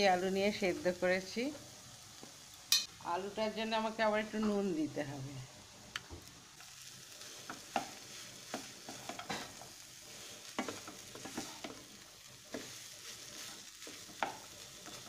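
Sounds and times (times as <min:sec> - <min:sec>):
faint frying sizzle: 0:00.0 - 0:15.0
spatula scraping and tapping pan: 0:07.4 - 0:15.0.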